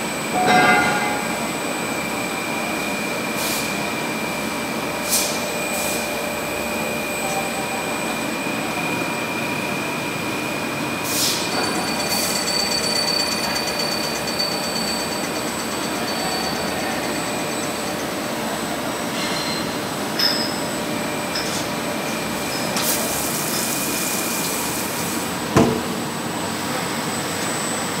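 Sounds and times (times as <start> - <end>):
high machine whine: 0.0 - 28.0
lathe machine noise: 11.4 - 20.0.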